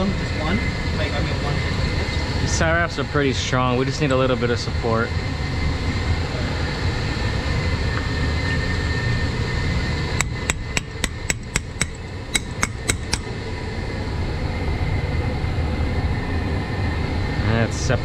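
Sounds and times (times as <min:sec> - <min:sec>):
low machine-room hum: 0:00.0 - 0:18.0
wrench tapping on metal pipe: 0:10.2 - 0:13.3.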